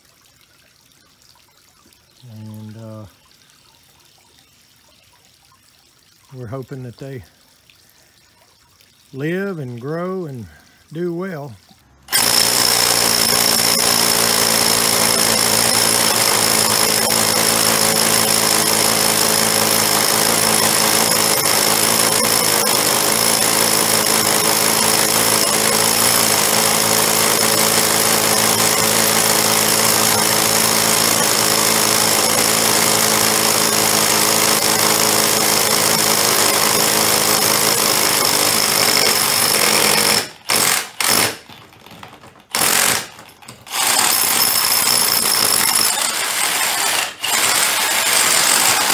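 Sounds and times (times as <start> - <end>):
power drill running: 12.1 - 41.6, 42.5 - 48.9.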